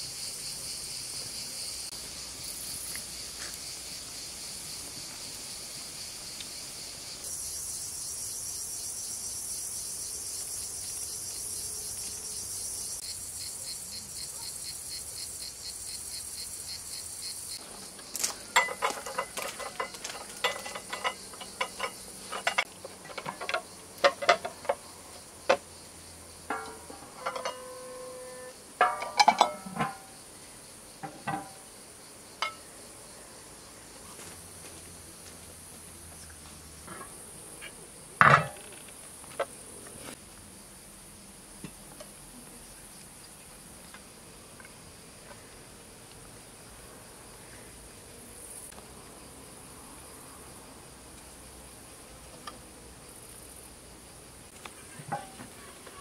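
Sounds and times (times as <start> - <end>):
insects chirring: 0.0 - 56.0
ceramic dishes clinking: 18.6 - 24.8, 26.5 - 28.1, 28.8 - 30.1, 31.0 - 31.6, 32.4 - 32.6.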